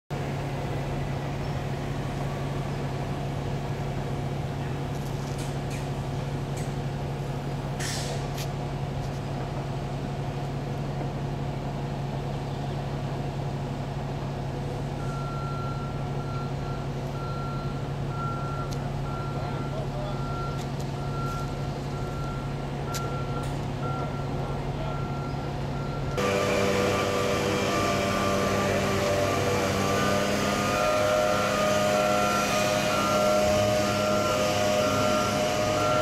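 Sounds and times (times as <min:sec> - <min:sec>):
paving machines engine hum: 0:00.1 - 0:36.0
short hiss: 0:07.8 - 0:08.4
reversing alarm beeping: 0:15.0 - 0:36.0.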